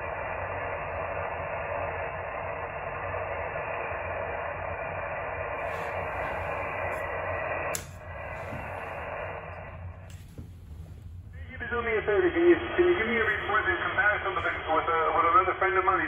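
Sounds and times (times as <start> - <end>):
radio static and band noise: 5.6 - 16.0
sharp click: 7.7 - 8.0.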